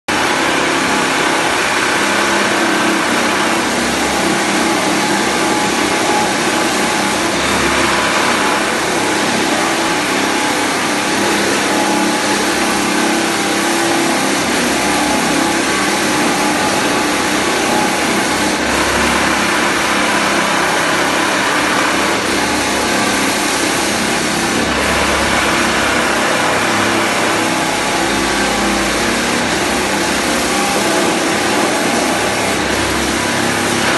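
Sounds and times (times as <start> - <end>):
floor sander on wooden floor: 0.1 - 33.9.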